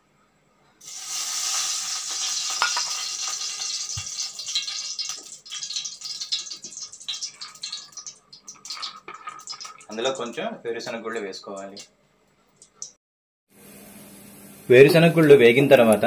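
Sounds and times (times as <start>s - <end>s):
oil crackling and popping: 0.8s - 10.4s, 11.4s - 11.9s, 12.6s - 13.0s
oil sizzling in a hot pan: 0.8s - 10.4s.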